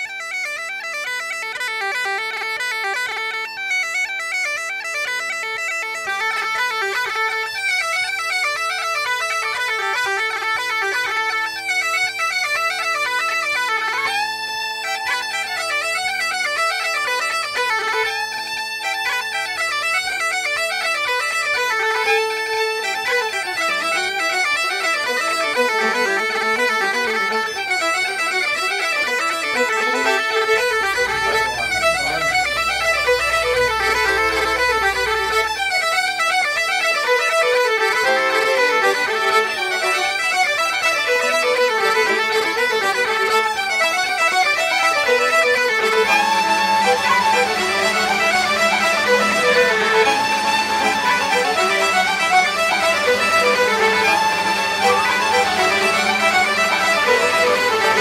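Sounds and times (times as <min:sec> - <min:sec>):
bagpipe tune with drones: 0:00.0 - 0:58.0
steady low beat: 0:30.4 - 0:35.8.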